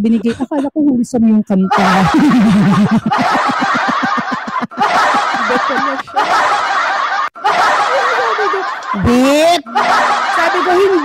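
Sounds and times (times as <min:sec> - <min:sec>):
woman laughing hard: 0:01.7 - 0:08.9.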